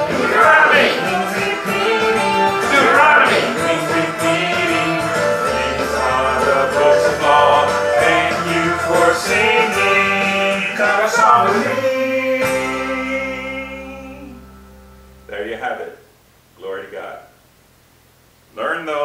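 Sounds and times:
song with instrumental backing: 0.0s - 15.3s.

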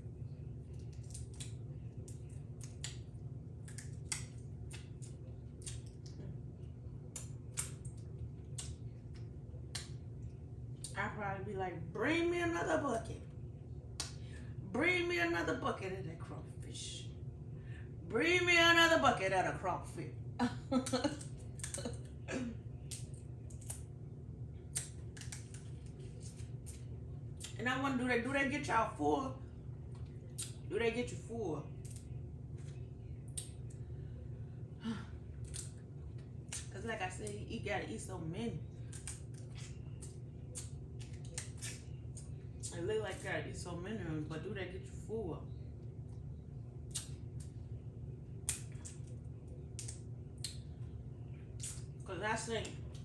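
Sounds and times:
person eating with clicks and cracks: 0.0s - 11.0s, 13.8s - 14.3s, 20.7s - 27.6s, 29.7s - 30.7s, 31.8s - 33.9s, 35.2s - 37.4s, 38.7s - 43.2s, 45.8s - 52.0s
steady low hum: 0.0s - 53.0s.

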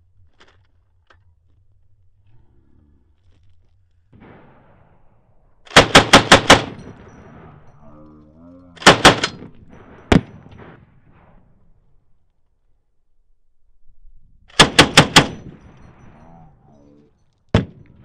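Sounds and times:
machine gun firing bursts: 5.7s - 7.5s, 8.8s - 10.8s, 14.5s - 15.8s.

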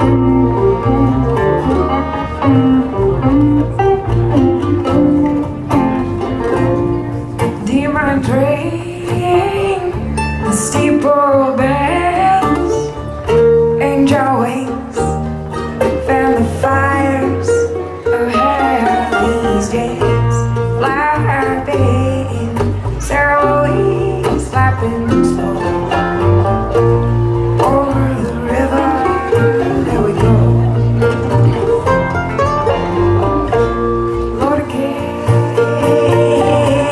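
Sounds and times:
banjo: 0.0s - 36.9s
strummed acoustic guitar: 0.0s - 36.9s
upright bass: 0.0s - 36.9s
person singing: 7.5s - 13.0s, 13.8s - 26.4s, 27.6s - 31.9s, 32.8s - 36.9s.

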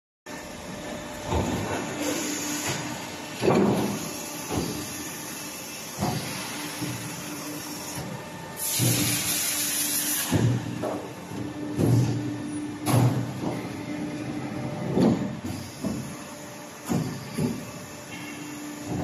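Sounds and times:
machine hum: 0.3s - 19.0s
loud hiss: 8.6s - 10.5s.

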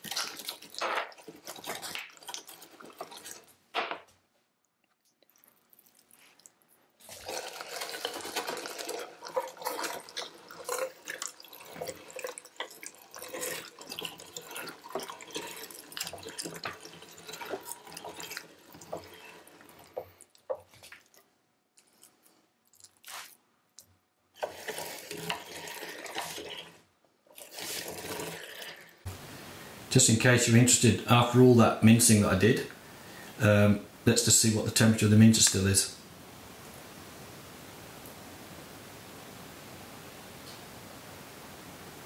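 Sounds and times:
meat squelching: 0.0s - 3.5s, 5.1s - 23.9s
hand-cranked meat mincer grinding: 7.1s - 20.1s, 24.4s - 26.8s, 27.4s - 28.8s.

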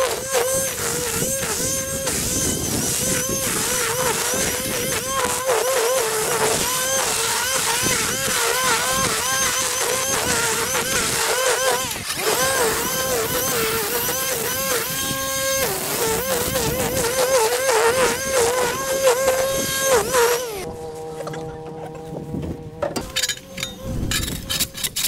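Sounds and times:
grass cutting hiss: 0.0s - 20.7s
electric motor whining under load: 0.0s - 25.0s.

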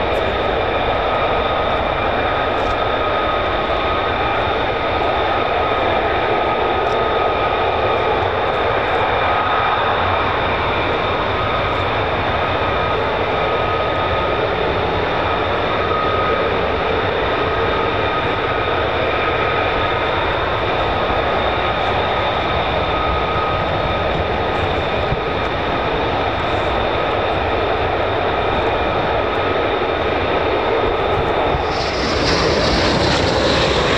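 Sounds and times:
high turbine whine: 0.0s - 33.9s
jet engine idling: 0.0s - 33.9s.

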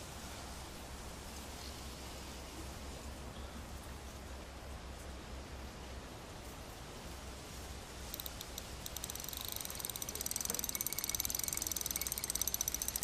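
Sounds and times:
fishing reel clicking: 8.1s - 13.0s.

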